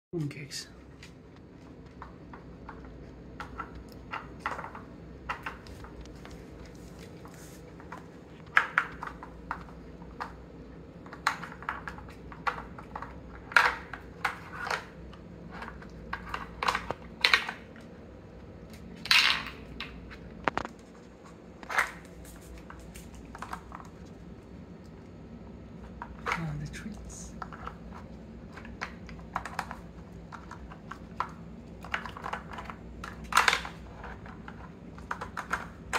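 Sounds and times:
hard plastic pieces clicking: 28.5 - 35.9.

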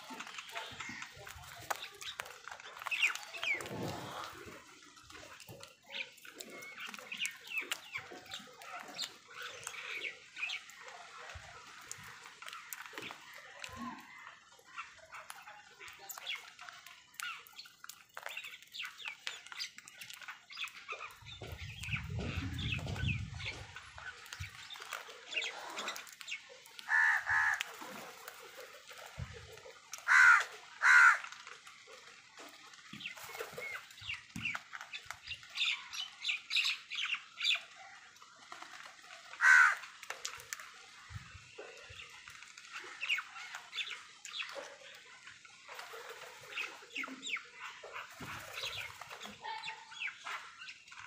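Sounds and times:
crow clicks and soft calls: 0.0 - 51.0
crows cawing: 26.8 - 27.9, 30.0 - 31.4, 39.4 - 40.0.

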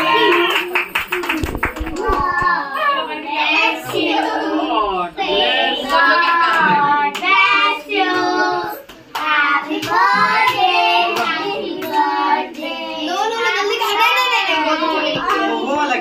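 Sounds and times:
hands clapping: 0.0 - 2.5, 5.9 - 7.4, 8.8 - 12.1.

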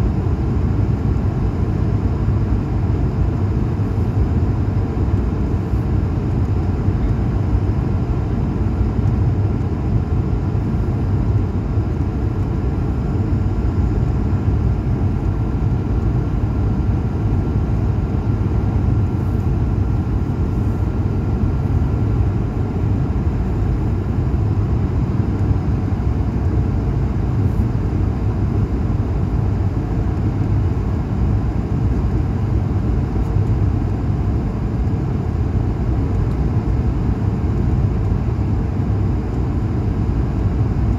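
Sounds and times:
jet engine cabin roar: 0.0 - 40.9.

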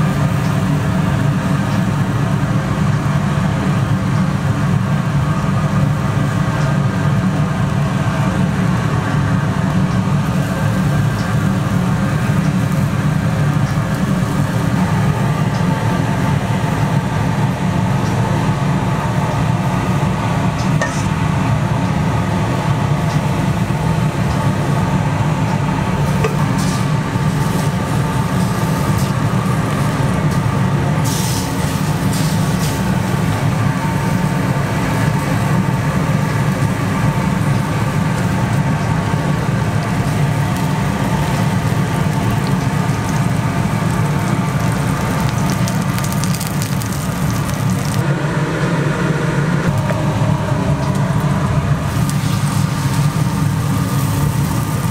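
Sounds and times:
low mechanical drone: 0.0 - 54.9.

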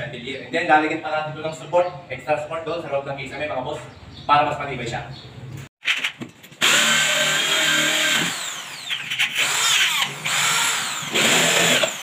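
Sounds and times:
power drill spinning: 6.6 - 12.0.

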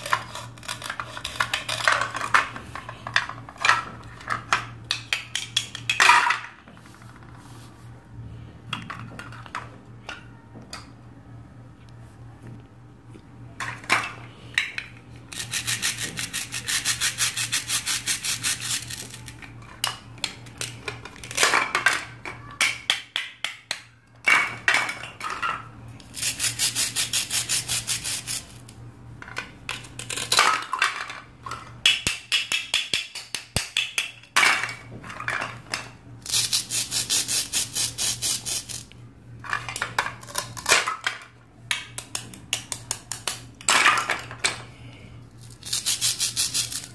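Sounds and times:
plastic pieces clacking: 0.0 - 6.4, 29.3 - 36.9.

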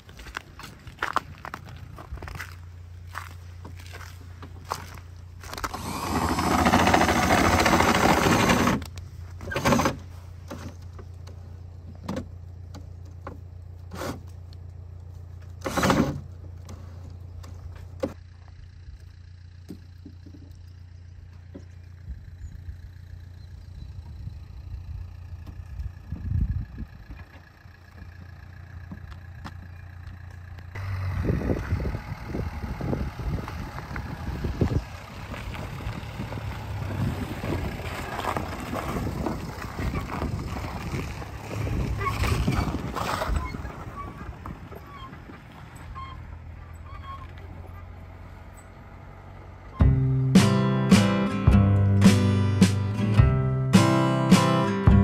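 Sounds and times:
cordless drill running: 5.7 - 8.8.

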